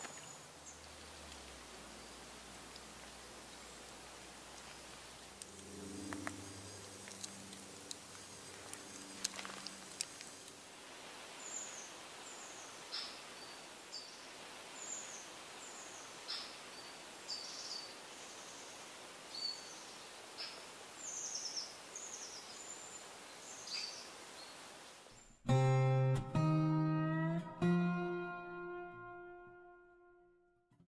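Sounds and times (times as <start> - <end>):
guitar music: 25.4 - 30.6.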